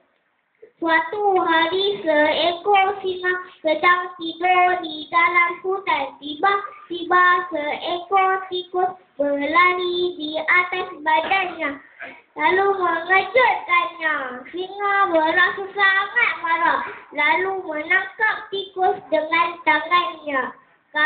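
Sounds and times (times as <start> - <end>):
boy singing into a microphone: 0.7 - 21.0.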